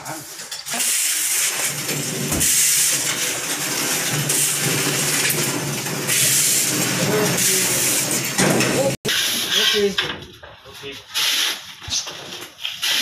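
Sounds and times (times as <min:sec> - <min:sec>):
metal frame scraping across tiled floor: 0:00.0 - 0:10.1.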